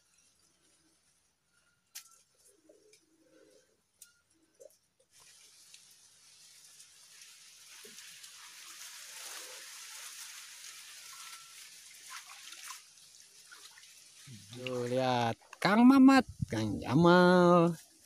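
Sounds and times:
water sloshing and splashing: 4.6 - 15.0.

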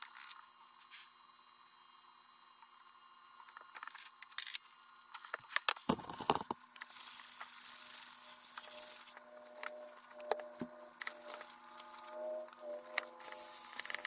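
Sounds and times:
paper towel rubbing hiss: 6.9 - 9.2.

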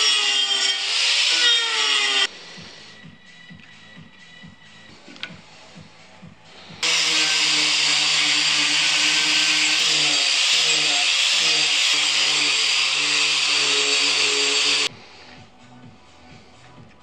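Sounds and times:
angle grinder grinding wood: 0.0 - 2.3, 6.8 - 14.9.

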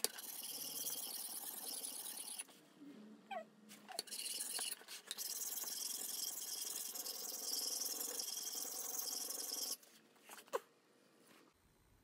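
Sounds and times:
hatchet rubbed on sharpening stone: 0.1 - 2.4, 4.0 - 9.8.

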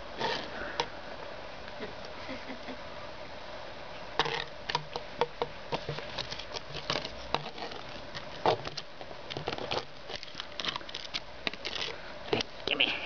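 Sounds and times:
puppy chewing plastic disc: 5.7 - 12.5.

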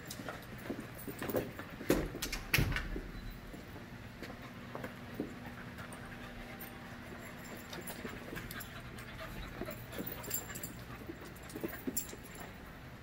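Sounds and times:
paws scuffling on rubber floor: 0.0 - 2.3, 3.0 - 12.7
puppies panting: 4.3 - 12.8.

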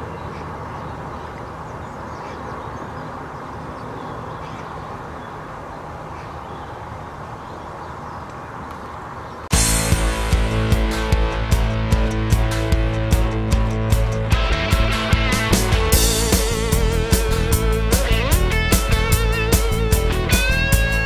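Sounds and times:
faint bird calls: 0.0 - 9.5
loud guitar music: 9.5 - 21.0.

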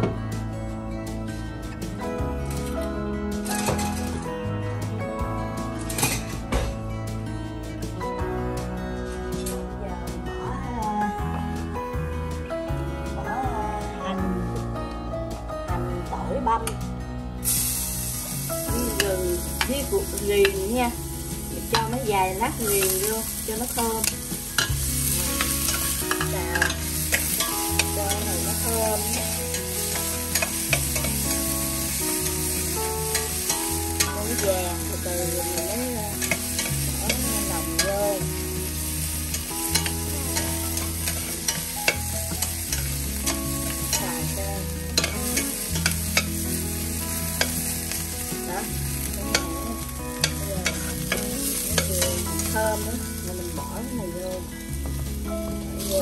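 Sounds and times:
food sizzling in hot oil: 2.6 - 4.3, 17.4 - 56.0.

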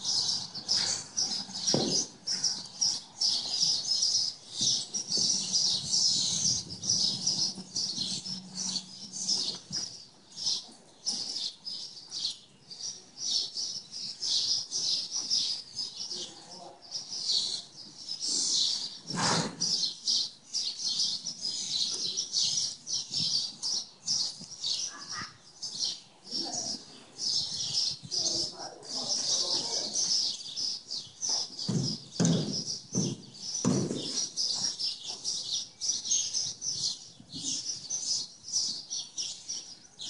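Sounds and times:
small birds chirping: 0.0 - 40.0.

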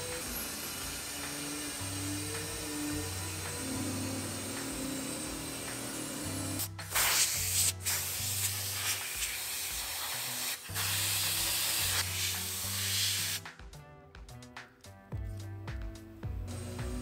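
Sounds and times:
compressed-air blow gun hissing: 0.0 - 13.5.

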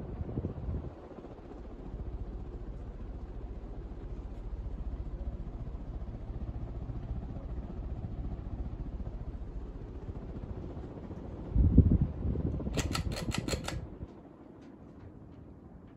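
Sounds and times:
ceiling fan whirring: 7.9 - 14.2.

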